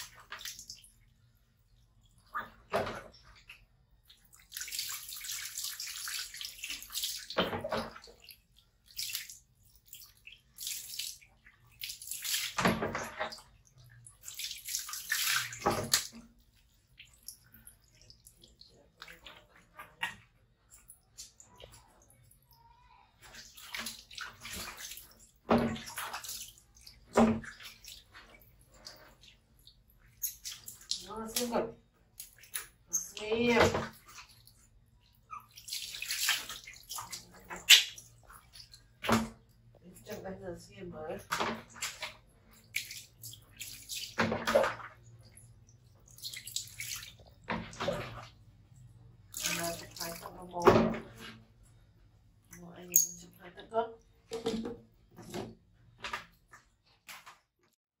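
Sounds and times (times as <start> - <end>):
water splashing and sloshing: 0.0 - 57.8.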